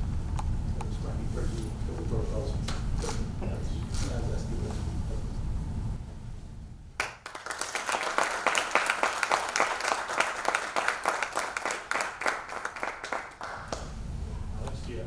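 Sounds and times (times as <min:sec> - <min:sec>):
audience applauding: 0:07.0 - 0:13.8.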